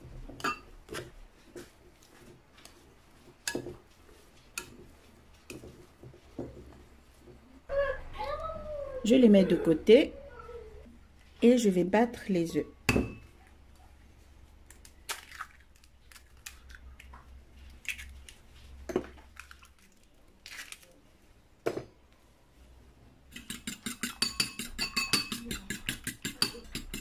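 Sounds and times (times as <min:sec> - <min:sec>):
fork clinking against bowl: 0:23.4 - 0:27.0.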